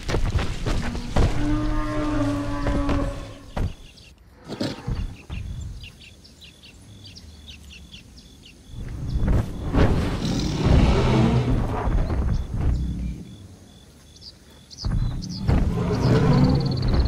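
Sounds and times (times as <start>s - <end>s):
small birds chirping: 1.0s - 17.0s
low thuds: 8.8s - 13.4s, 14.8s - 17.0s.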